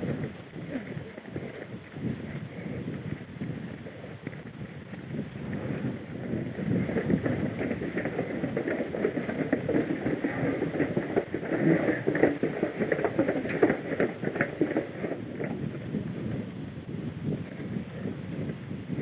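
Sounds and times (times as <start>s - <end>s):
running footsteps: 0.0s - 16.6s.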